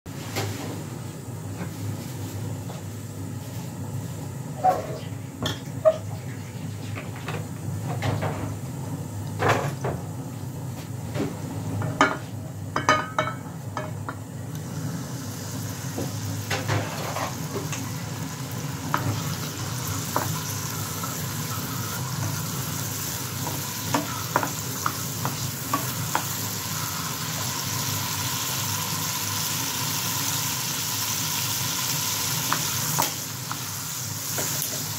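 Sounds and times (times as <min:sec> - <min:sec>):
vegetables sizzling in pan: 0:14.4 - 0:34.9.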